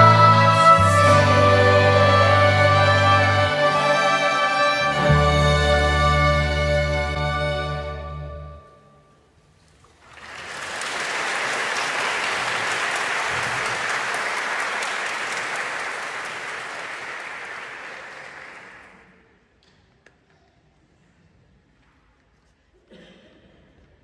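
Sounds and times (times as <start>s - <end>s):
audience applauding: 10.0s - 19.2s.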